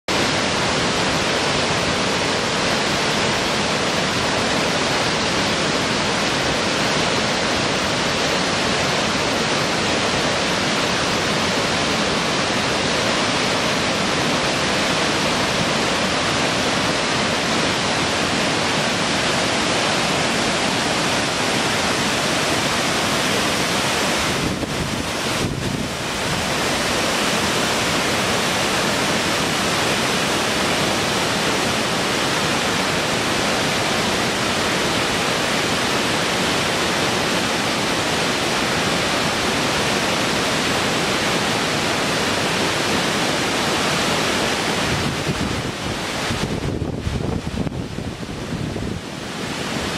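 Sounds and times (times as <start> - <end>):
water rushing over rocks: 0.1 - 49.9.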